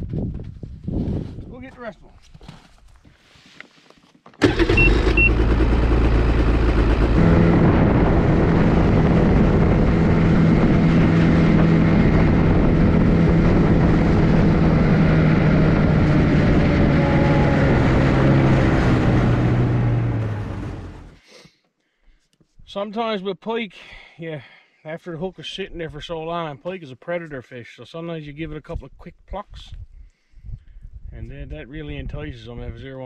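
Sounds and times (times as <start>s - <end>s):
snowmobile engine running: 4.4s - 21.2s
short beeps: 4.7s - 5.4s.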